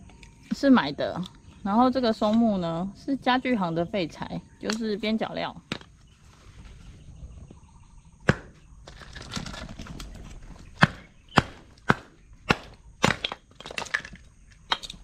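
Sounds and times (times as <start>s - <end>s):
hatchet splitting wood: 8.2s - 8.6s, 10.7s - 15.0s.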